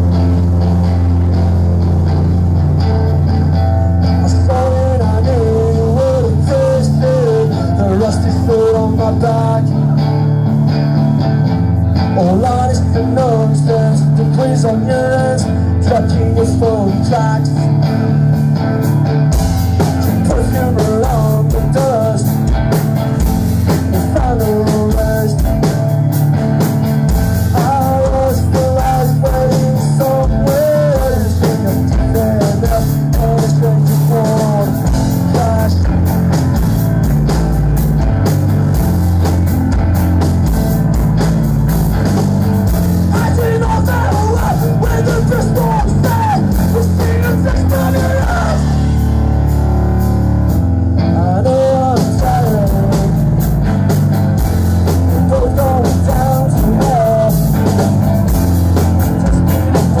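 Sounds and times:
live rock band playing loud: 0.0 - 60.0.

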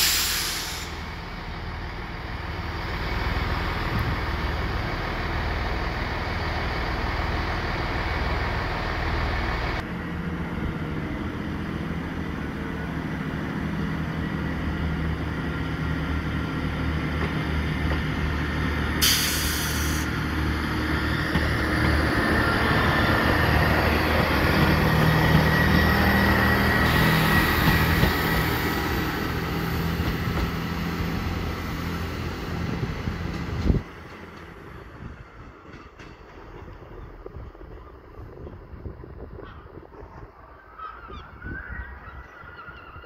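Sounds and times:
short hiss: 0.0 - 1.0, 19.0 - 20.1
train diesel engine drone: 0.0 - 43.0.

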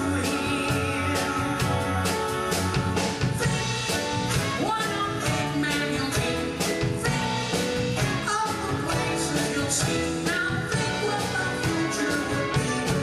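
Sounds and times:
man singing into a microphone: 0.0 - 3.0
band accompaniment: 0.0 - 13.0
steady drum beat: 0.0 - 13.0.

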